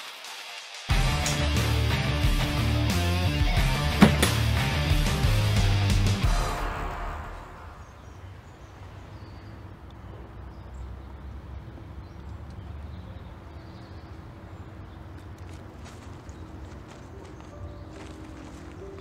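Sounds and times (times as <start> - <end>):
rock music with guitar: 0.9 - 7.0.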